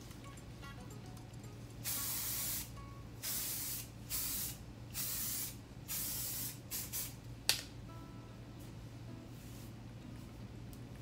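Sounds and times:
aerosol spray hissing: 0:01.8 - 0:07.2.

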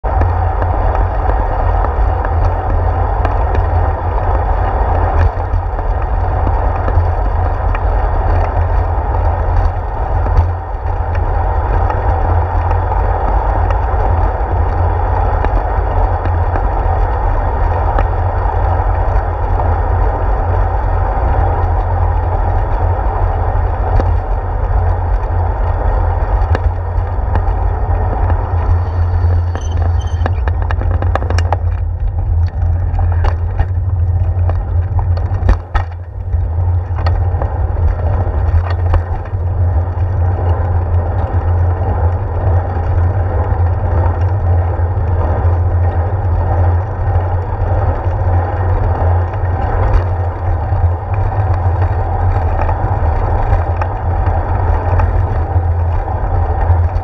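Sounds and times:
bicycle clicks and rattles: 0:00.0 - 0:57.0
bicycle road rumble: 0:00.0 - 0:57.0
wind noise: 0:00.0 - 0:57.0.

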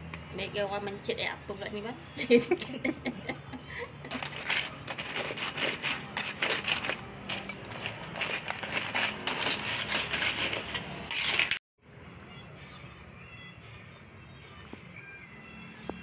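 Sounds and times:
metal spatula stirring: 0:04.1 - 0:11.6
shells clattering in a wok: 0:04.1 - 0:11.6.

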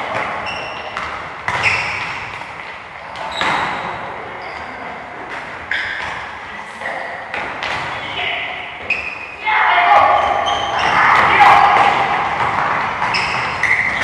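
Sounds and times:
short high squeaks: 0:13.1 - 0:14.0.

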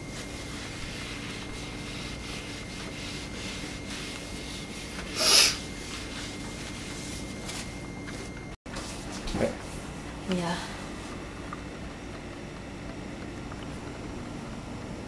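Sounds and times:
cloth wiping glass cooktop: 0:00.0 - 0:10.0.

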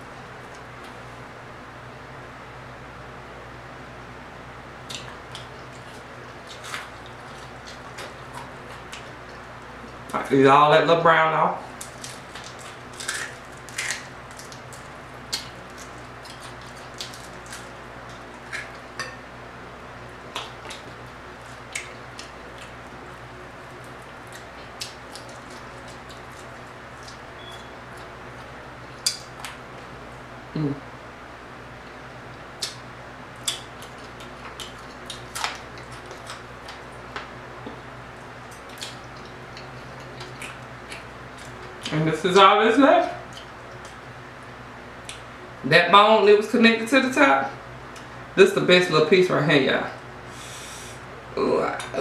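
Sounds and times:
faint steady hum: 0:00.0 - 0:52.0
crisp eating crunches: 0:04.8 - 0:10.2, 0:11.7 - 0:19.0, 0:20.0 - 0:29.7, 0:31.8 - 0:42.3
chewing: 0:04.9 - 0:10.1, 0:11.8 - 0:19.2, 0:20.1 - 0:29.6, 0:33.4 - 0:42.0, 0:43.2 - 0:44.0.

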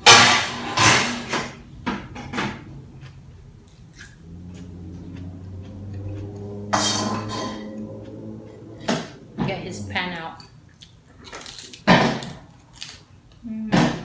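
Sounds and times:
crunchy chewing of lettuce: 0:03.0 - 0:08.8, 0:10.7 - 0:13.2.

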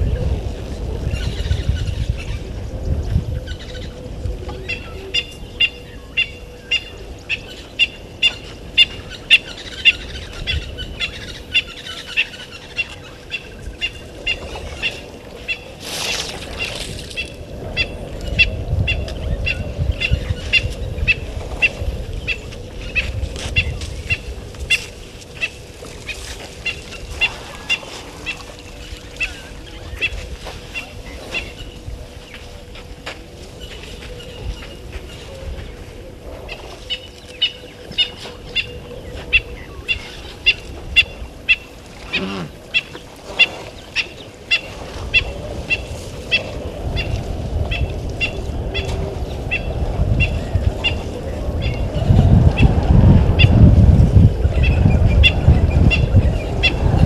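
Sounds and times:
low rumbling: 0:45.0 - 0:57.0.

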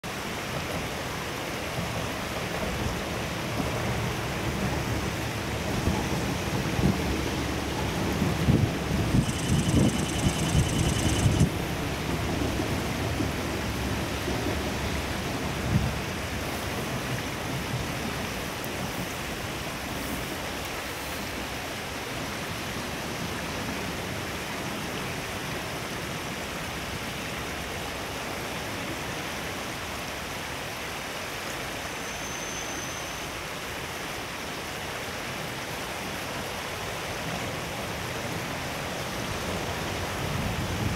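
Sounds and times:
steady rushing hiss: 0:00.2 - 0:22.3.

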